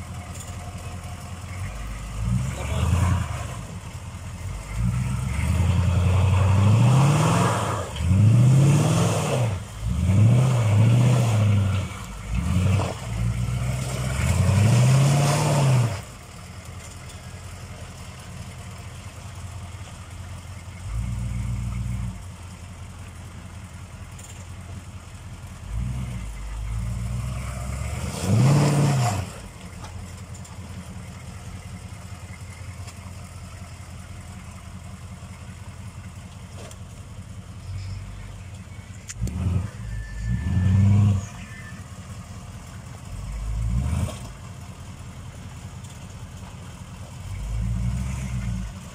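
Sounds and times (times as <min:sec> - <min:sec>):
engine idling: 0:00.0 - 0:06.8, 0:09.5 - 0:10.3, 0:16.0 - 0:28.0, 0:29.3 - 0:48.9
diesel engine revving: 0:00.0 - 0:48.9.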